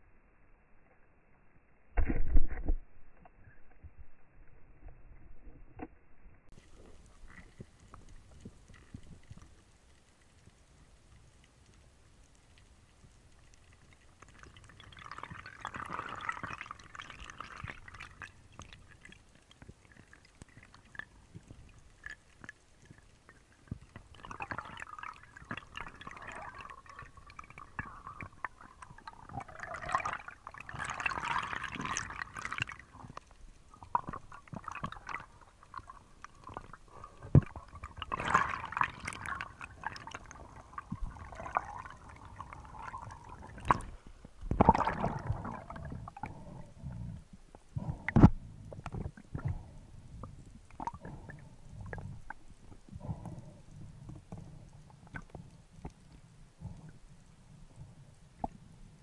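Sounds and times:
underwater gurgling rushing water: 0:13.6 - 0:56.9.

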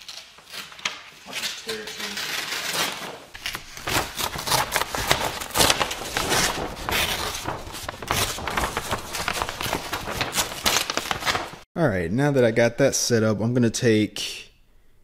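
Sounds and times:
paper rustling and crinkling: 0:00.0 - 0:11.6.

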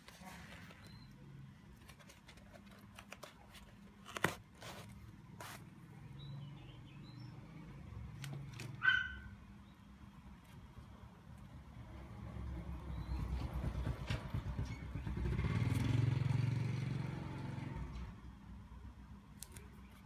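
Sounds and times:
rustling tissue paper: 0:01.7 - 0:05.7.

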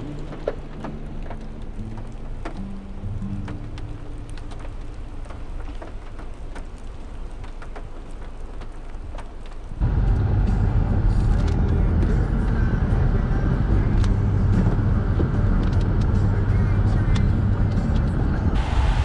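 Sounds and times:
rain falling: 0:00.0 - 0:19.0
vehicle rumbling on road: 0:00.0 - 0:19.0.

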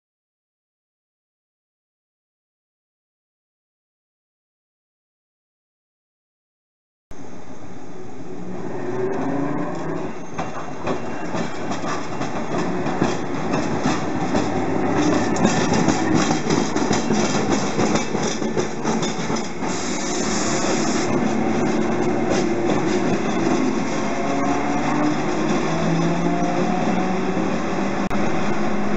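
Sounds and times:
tram rumble: 0:07.1 - 0:28.9
tram wheels clacking over rail joints: 0:09.0 - 0:28.9
brief high hiss: 0:19.6 - 0:21.1.

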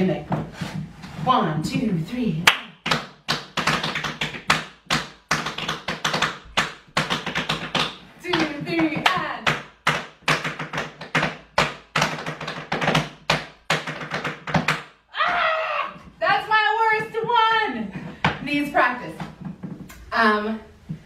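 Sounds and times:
rapid tap shoe taps: 0:02.6 - 0:14.9.

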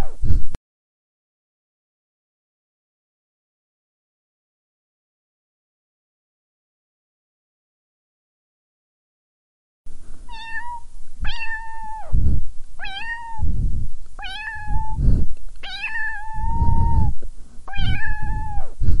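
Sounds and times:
low rumbling noise: 0:09.9 - 0:19.0
cat meowing: 0:10.3 - 0:12.2, 0:12.8 - 0:13.5, 0:14.2 - 0:15.0, 0:15.6 - 0:18.8.

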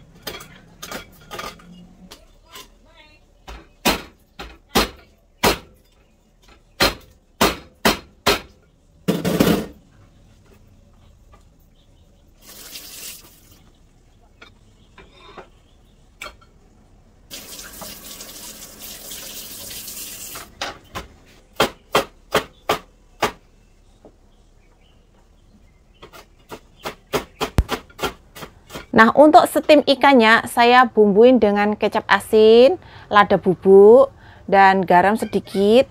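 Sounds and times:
kitchen tap running: 0:12.4 - 0:13.6, 0:17.3 - 0:20.5.

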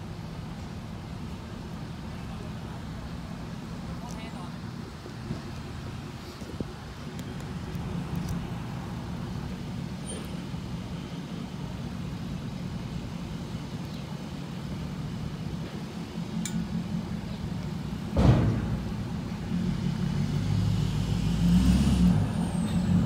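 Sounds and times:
diesel truck engine rumbling: 0:00.0 - 0:23.0
loud thump: 0:18.1 - 0:18.9.

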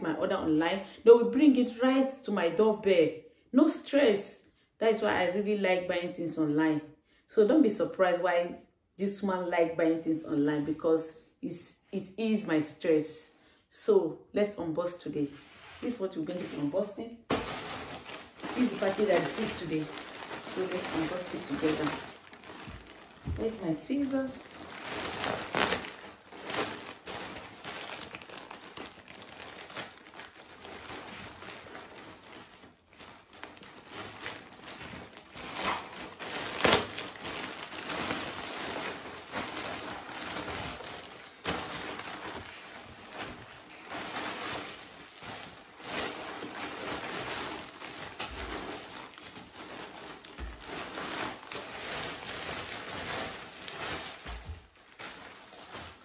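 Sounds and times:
plastic packaging crinkling: 0:15.8 - 0:56.0.

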